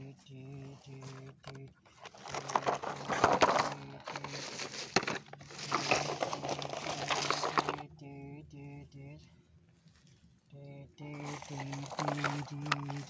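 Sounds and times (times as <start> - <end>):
toy trucks scraping through sand: 1.9 - 7.8, 11.2 - 13.0.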